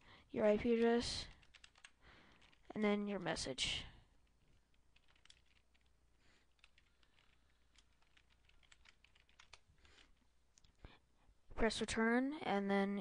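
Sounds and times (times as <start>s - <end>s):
typing on computer keyboard: 0.6s - 2.7s, 4.9s - 10.2s.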